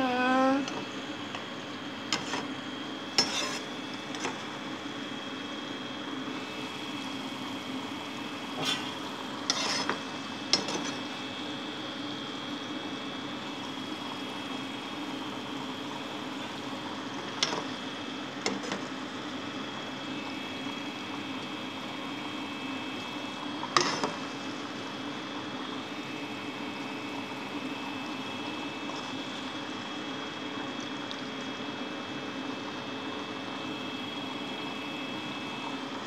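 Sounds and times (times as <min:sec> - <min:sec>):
chicken deep-frying in oil: 0:00.3 - 0:36.0.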